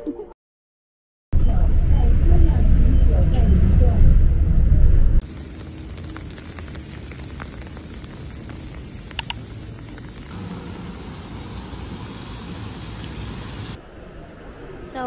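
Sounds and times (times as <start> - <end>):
rainy street hiss: 2.2 - 15.0
sharp clicks: 9.1 - 9.4.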